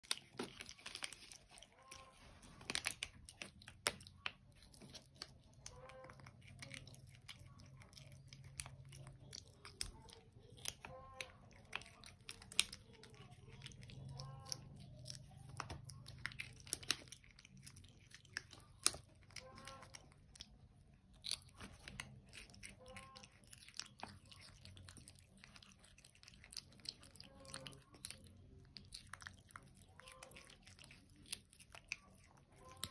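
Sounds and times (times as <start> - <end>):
monkey chewing crunchy vegetables: 0.0 - 32.9.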